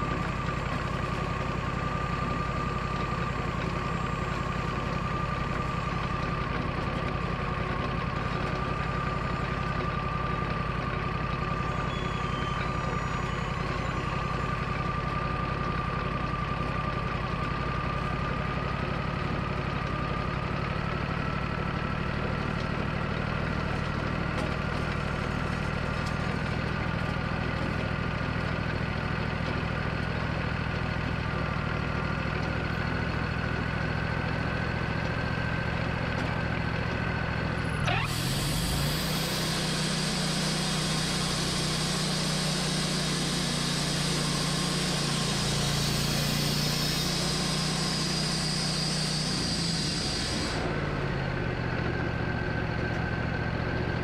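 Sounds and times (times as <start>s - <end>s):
engine whine: 0.0s - 54.0s
sawmill engine running: 0.0s - 54.0s
saw blade hiss: 37.9s - 50.7s.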